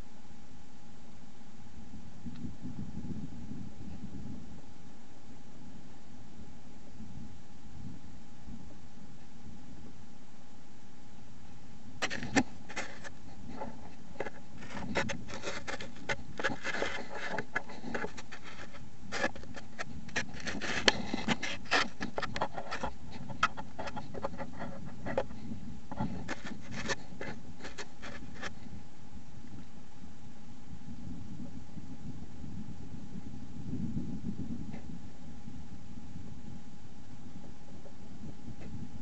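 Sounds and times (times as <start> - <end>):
faint steady tone: 0.0 - 39.0
animal scratching in leaf litter: 12.0 - 25.2, 25.9 - 28.6.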